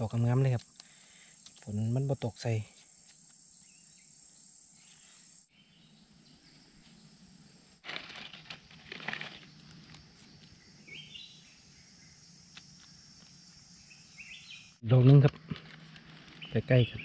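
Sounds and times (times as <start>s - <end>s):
high insect drone: 0.0s - 17.0s
rustling: 7.8s - 10.6s, 15.1s - 16.6s.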